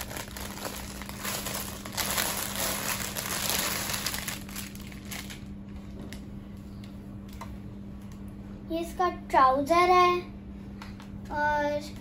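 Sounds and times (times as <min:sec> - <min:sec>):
plastic bag crinkling: 0:00.0 - 0:06.2.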